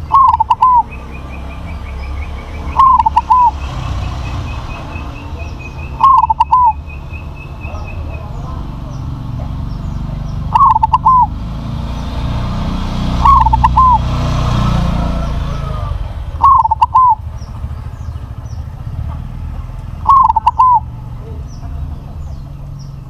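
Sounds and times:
dove cooing: 0.0 - 7.0, 10.5 - 11.4, 13.2 - 14.2, 15.0 - 17.4, 20.0 - 21.0
small birds chirping: 0.0 - 23.0.

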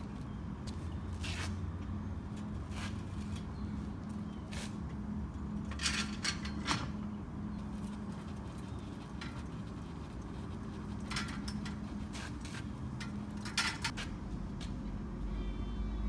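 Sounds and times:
steady low hum: 0.0 - 16.0
metallic clicks and scrapes of tools: 9.1 - 14.1.

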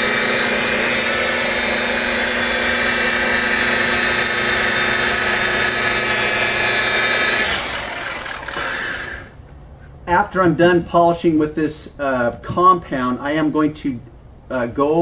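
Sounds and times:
electric buffer whining: 0.0 - 9.4.

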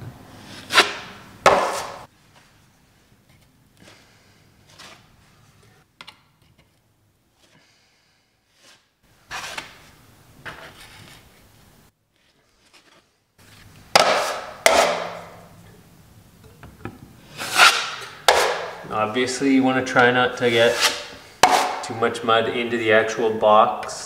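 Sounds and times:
drywall knife scraping compound: 0.4 - 2.1, 8.5 - 9.8, 12.2 - 15.4, 17.3 - 18.8, 20.4 - 21.9.

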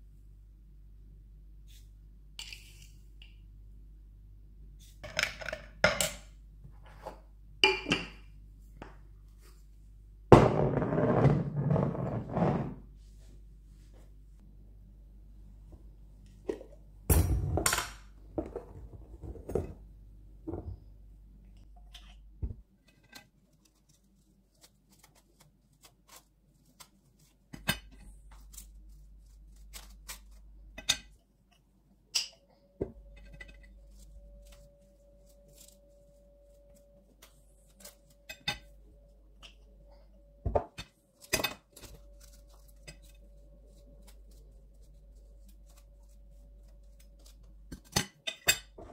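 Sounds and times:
faint steady hum: 12.9 - 24.9, 27.6 - 48.9.

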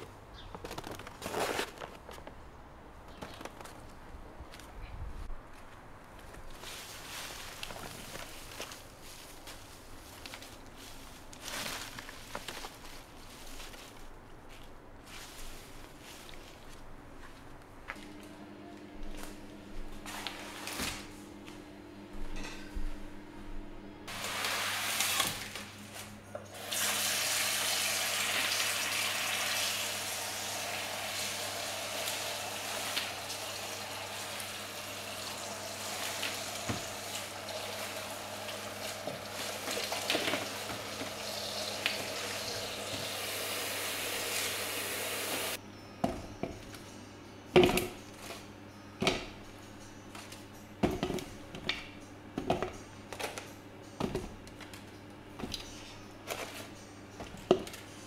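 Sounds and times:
tap water running into sink: 26.7 - 45.5.

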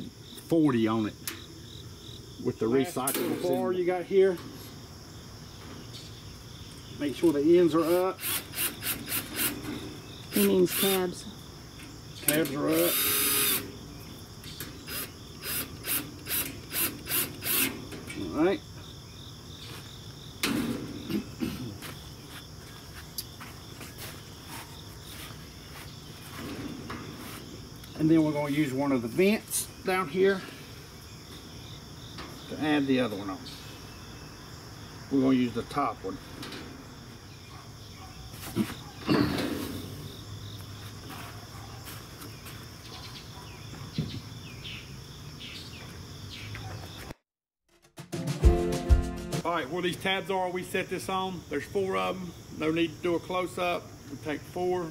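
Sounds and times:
insects chirping: 0.0 - 47.1, 49.4 - 54.9
cordless drill driving screw: 8.2 - 9.6, 12.7 - 13.6, 14.9 - 17.7.

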